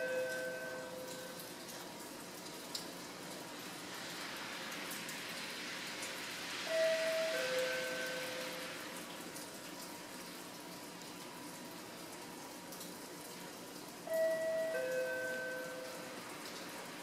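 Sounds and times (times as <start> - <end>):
platform background hiss: 6.4 - 9.0
two-note descending chime: 6.7 - 8.7.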